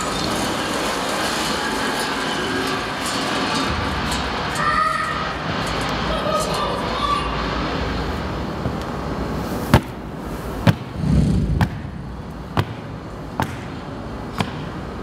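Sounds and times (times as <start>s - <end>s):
short low hum: 11.0s - 12.3s.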